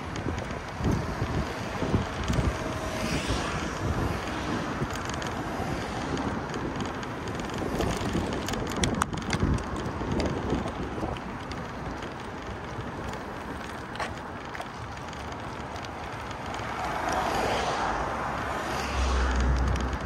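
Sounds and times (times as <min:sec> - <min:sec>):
traffic noise: 0:00.0 - 0:20.0
wind buffeting microphone: 0:00.0 - 0:20.0
sharp ticks: 0:18.8 - 0:20.0.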